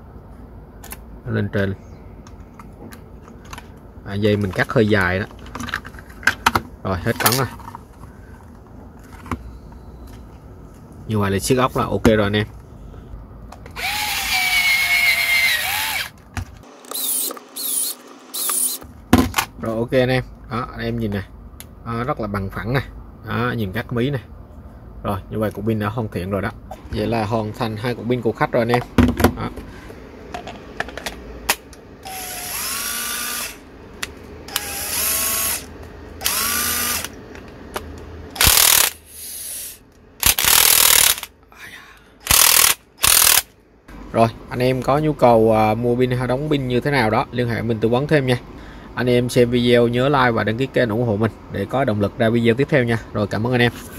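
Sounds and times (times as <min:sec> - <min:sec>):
electric screwdriver motor whine: 0:13.8 - 0:16.1, 0:16.7 - 0:18.8, 0:32.1 - 0:33.6, 0:34.5 - 0:37.1, 0:38.4 - 0:39.6, 0:40.2 - 0:41.3, 0:42.3 - 0:43.5.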